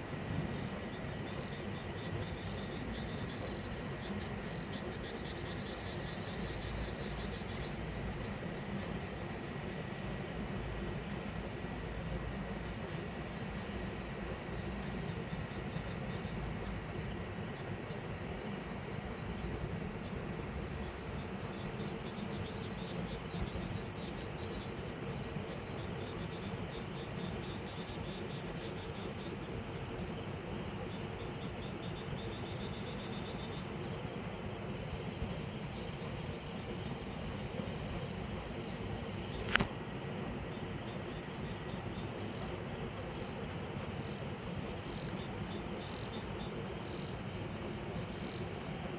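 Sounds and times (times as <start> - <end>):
crickets chirping: 0.0 - 48.9
distant city traffic hum: 32.2 - 48.9.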